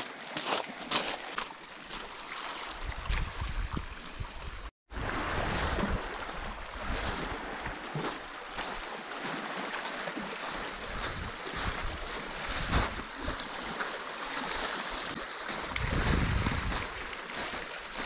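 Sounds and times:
footsteps on pebbles: 0.0s - 2.3s, 8.0s - 14.0s, 15.1s - 18.0s
waves lapping on pebble shore: 0.0s - 3.2s, 5.0s - 18.0s
wind buffeting microphone: 2.8s - 4.7s, 10.9s - 13.3s, 15.5s - 18.0s.

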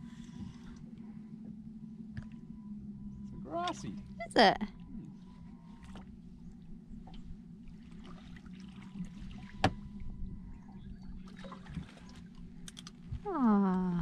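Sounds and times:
steady low hum: 0.0s - 14.0s
water splashing and trickling: 7.1s - 13.0s.

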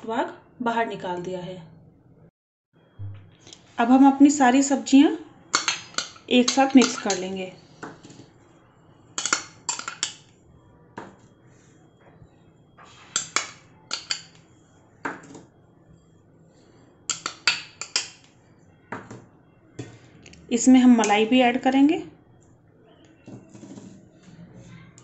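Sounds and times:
spoon clinking glass bowls: 5.5s - 7.3s, 9.2s - 10.3s, 13.2s - 14.4s, 17.1s - 18.2s.

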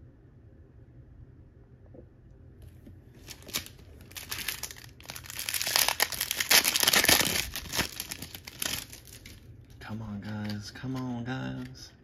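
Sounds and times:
card pack wrapper tearing and crinkling: 3.2s - 9.4s.

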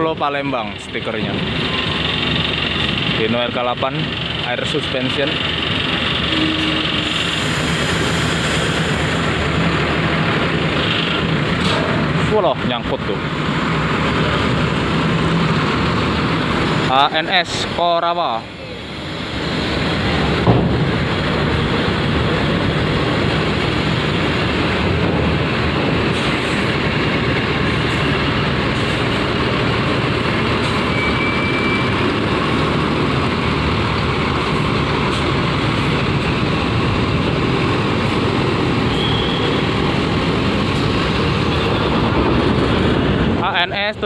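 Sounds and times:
diesel engine rumbling: 0.0s - 44.0s
short high beep: 30.9s - 31.9s, 38.9s - 39.6s.

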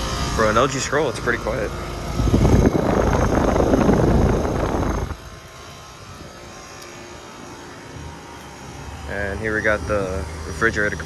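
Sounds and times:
air conditioner running hum: 0.0s - 11.0s
fan air rushing: 0.0s - 11.0s.

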